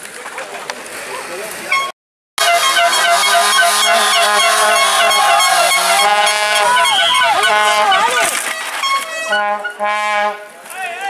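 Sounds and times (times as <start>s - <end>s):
honking horn tones: 1.7s - 10.5s.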